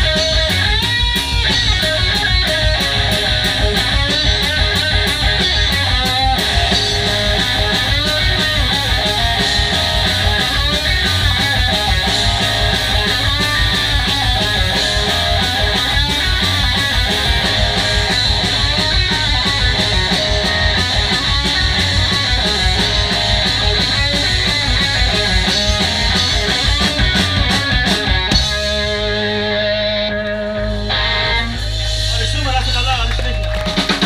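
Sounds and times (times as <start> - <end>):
bass guitar: 0.0 - 34.0
distorted electric guitars: 0.0 - 34.0
drum kit: 0.0 - 34.0.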